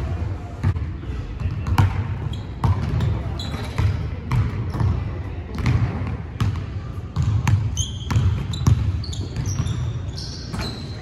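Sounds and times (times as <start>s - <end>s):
sneaker squeaks on court: 1.6s - 5.0s, 7.2s - 11.0s.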